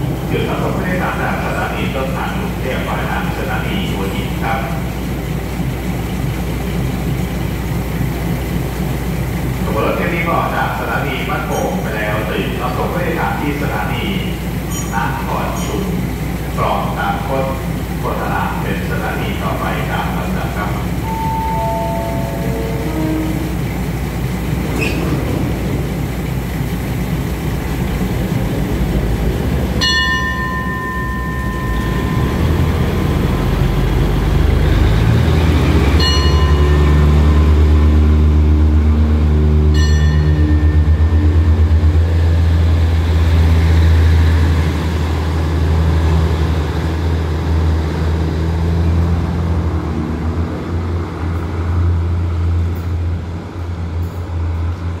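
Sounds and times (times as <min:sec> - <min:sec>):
diesel train engine drone: 0:00.0 - 0:55.0
high ringing signal tone: 0:21.0 - 0:23.7, 0:29.8 - 0:33.4, 0:39.8 - 0:41.9.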